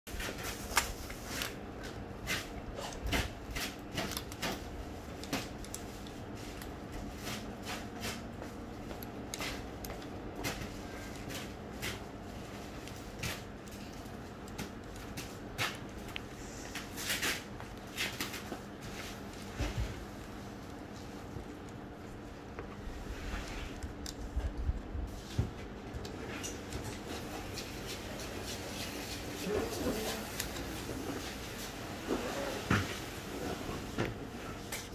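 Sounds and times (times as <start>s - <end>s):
bubble wrap rustling and crinkling: 0.1s - 8.9s
steady low hum: 0.1s - 34.9s.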